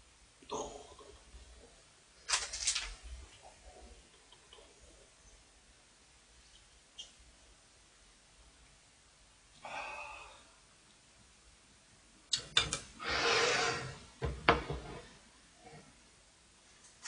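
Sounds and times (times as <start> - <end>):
dish sliding scrape: 13.0 - 15.1
dishes knocking on a table: 14.2 - 15.0.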